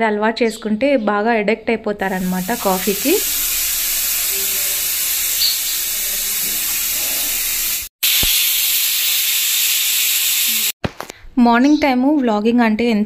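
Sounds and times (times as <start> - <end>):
pressure cooker hissing steam: 2.0 - 10.8.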